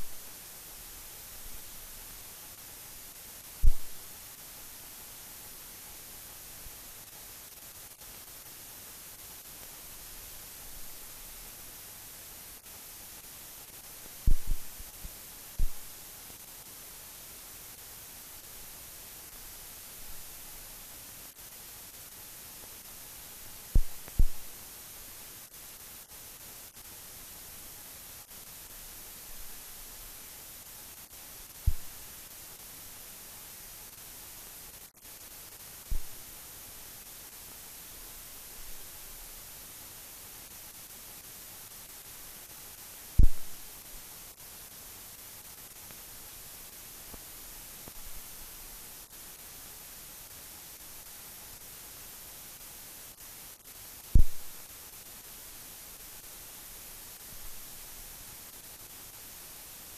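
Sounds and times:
film soundtrack hiss: 0:00.0 - 0:59.9
loud low thump: 0:03.6 - 0:03.9, 0:14.3 - 0:14.7, 0:23.8 - 0:24.4, 0:43.2 - 0:43.5, 0:54.2 - 0:54.4
loud low pops: 0:03.6 - 0:04.0, 0:14.2 - 0:14.8, 0:15.6 - 0:15.9, 0:23.8 - 0:24.5, 0:31.7 - 0:32.0, 0:35.9 - 0:36.2, 0:43.2 - 0:43.6, 0:54.2 - 0:54.6.

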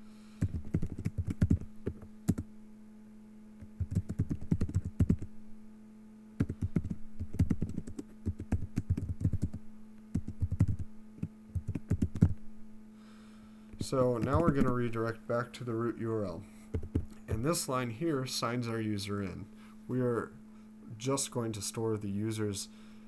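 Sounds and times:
typing on computer keyboard: 0:00.4 - 0:01.7, 0:03.8 - 0:05.3, 0:06.4 - 0:10.8, 0:11.5 - 0:12.3.

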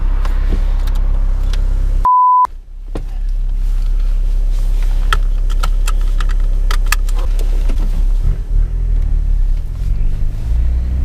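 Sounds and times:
car engine idling: 0:00.0 - 0:10.5
censor bleep: 0:02.0 - 0:02.5
seat belt clicking and rattling: 0:04.8 - 0:08.3.

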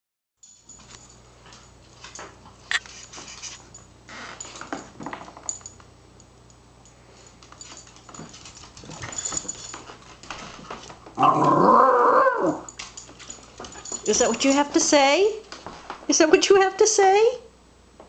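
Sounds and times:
dog howling: 0:11.2 - 0:12.7.

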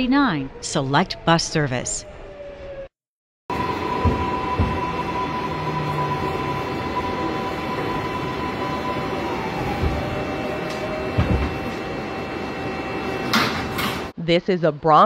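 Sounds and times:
high steady tones: 0:03.5 - 0:13.6
subway car electrical hum: 0:03.5 - 0:14.2.

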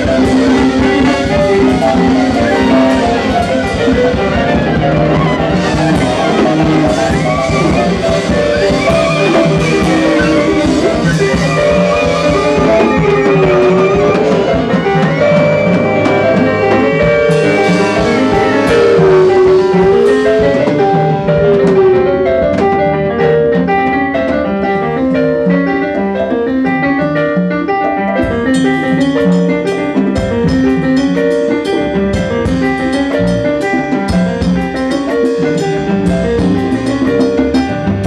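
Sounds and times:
jazz band playing: 0:00.0 - 0:38.0
wavering held horn note: 0:04.5 - 0:23.2.

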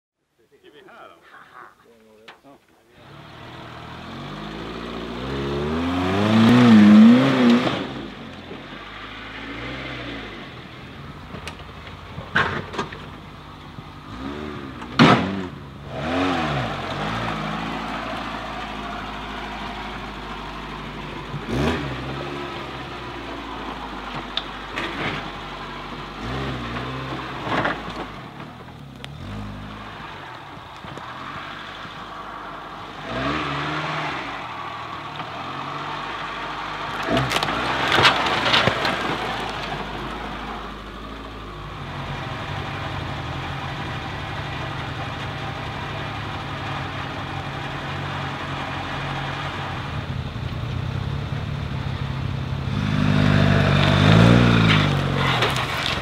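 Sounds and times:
off-road vehicle engine revving: 0:03.0 - 0:56.0.

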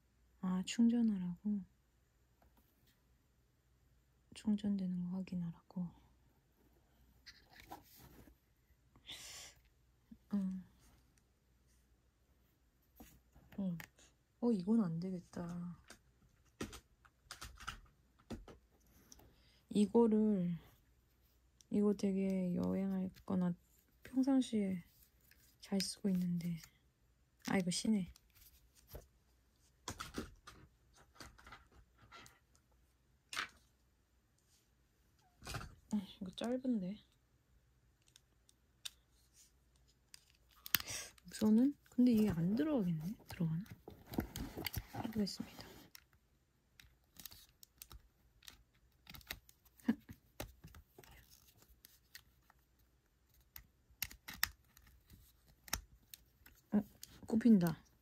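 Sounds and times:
handling rustles: 0:07.1 - 0:08.5, 0:39.0 - 0:46.0.

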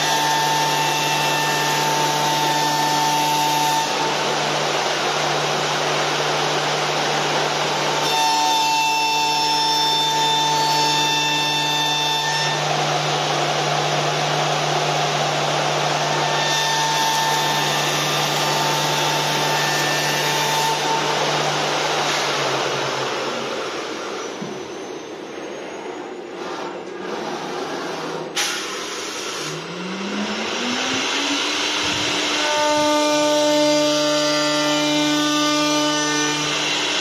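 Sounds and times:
high machine whine: 0:00.0 - 0:37.0
loud rushing noise: 0:20.8 - 0:25.3, 0:26.3 - 0:33.2.

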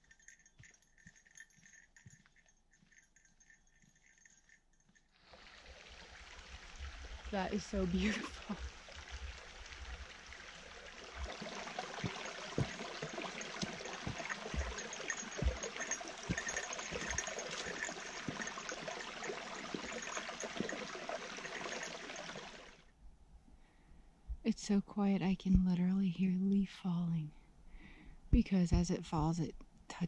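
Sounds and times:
brook running over rocks: 0:05.2 - 0:22.8
soft low thumps: 0:11.2 - 0:18.9, 0:25.4 - 0:26.0, 0:28.4 - 0:29.4.

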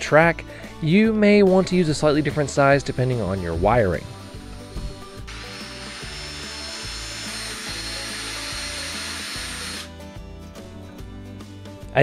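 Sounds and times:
quiet background music: 0:00.0 - 0:12.0
power drill whirring: 0:04.0 - 0:09.9.

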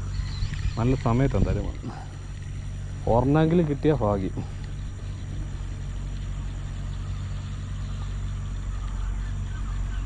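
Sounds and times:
diesel engine humming: 0:00.0 - 0:10.0.

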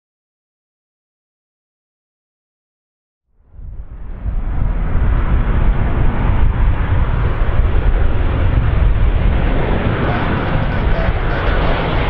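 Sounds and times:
airplane engines roaring: 0:03.4 - 0:12.0.

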